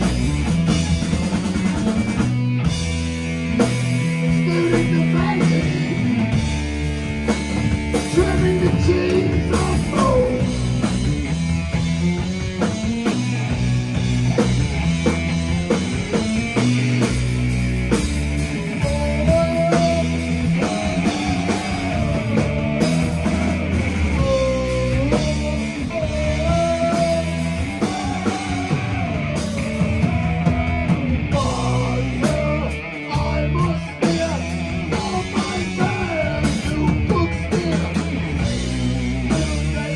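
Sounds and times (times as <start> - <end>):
live rock band playing: 0.0 - 39.9
lead vocal singing: 4.2 - 6.4, 7.9 - 11.0, 18.5 - 39.9.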